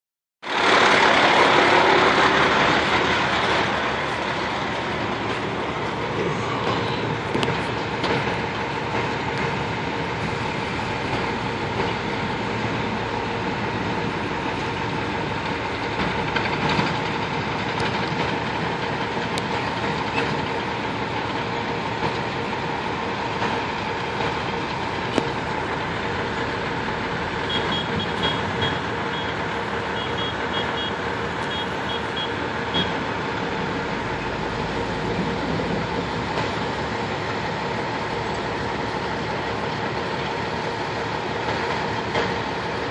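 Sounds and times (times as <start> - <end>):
bulldozer engine drone: 0.4 - 42.9
steel tracks rattling: 0.4 - 42.9.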